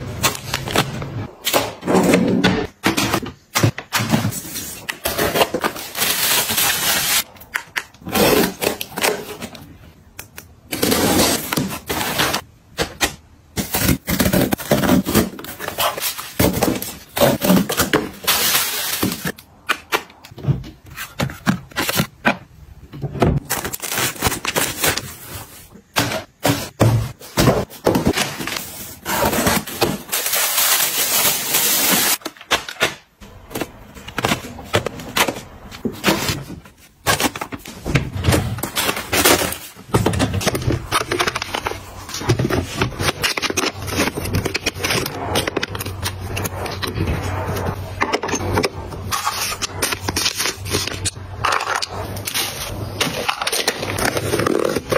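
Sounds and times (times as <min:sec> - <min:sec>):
plastic packaging crinkling: 0:23.4 - 0:25.7.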